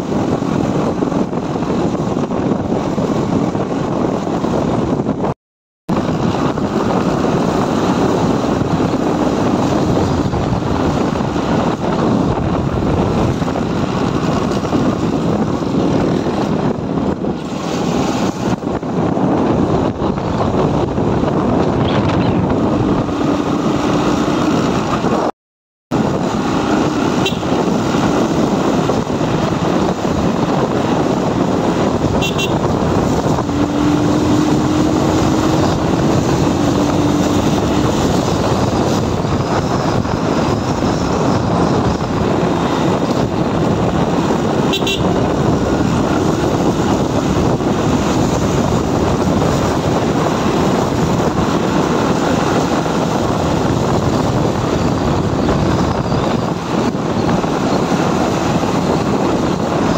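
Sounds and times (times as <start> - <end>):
wind rush on microphone: 0.0 - 59.9
motorcycle engine running: 25.9 - 59.9
horn toots: 26.8 - 28.0, 32.0 - 38.1, 44.6 - 45.4.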